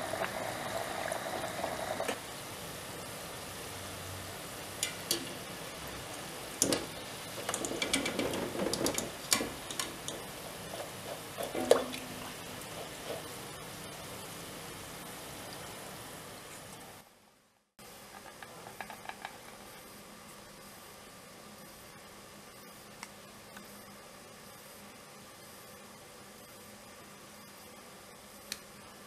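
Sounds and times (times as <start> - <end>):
dough sizzling in hot oil: 0.0 - 17.1.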